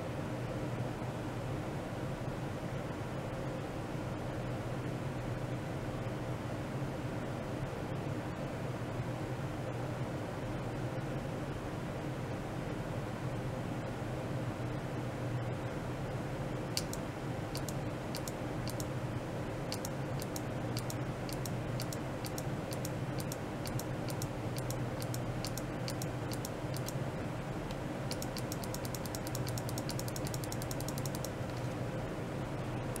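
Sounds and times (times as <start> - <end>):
electrical hum: 0.0 - 33.0
sharp high-pitched clicks: 16.8 - 18.9, 19.7 - 27.0, 27.6 - 31.8.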